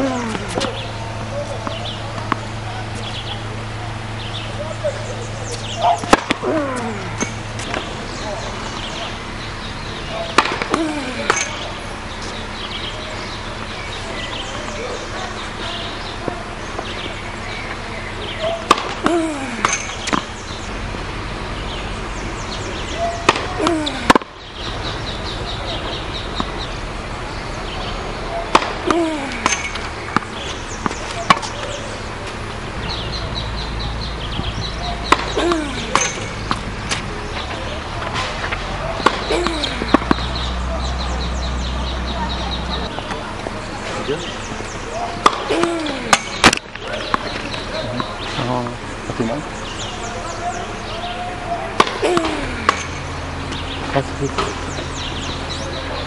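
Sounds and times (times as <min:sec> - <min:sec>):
tennis ball struck by racket: 0:00.0 - 0:03.3, 0:05.4 - 0:13.4, 0:18.4 - 0:20.6, 0:22.8 - 0:24.8, 0:25.4 - 0:26.8, 0:28.3 - 0:32.4, 0:34.3 - 0:41.2, 0:45.0 - 0:48.2, 0:50.9 - 0:54.9
tennis ball bouncing on court: 0:00.0 - 0:03.4, 0:05.5 - 0:09.5, 0:10.1 - 0:17.8, 0:18.4 - 0:20.7, 0:22.8 - 0:26.8, 0:28.3 - 0:32.4, 0:33.1 - 0:43.6, 0:44.4 - 0:48.3, 0:51.7 - 0:55.3.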